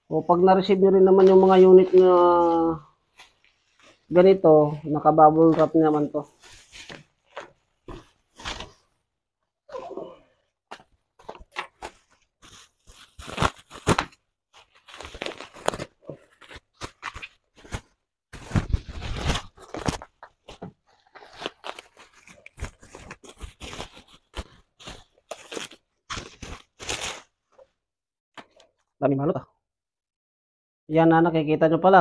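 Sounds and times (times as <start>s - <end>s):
plastic bag and bubble wrap rustling: 0.5s - 9.0s, 10.8s - 27.5s.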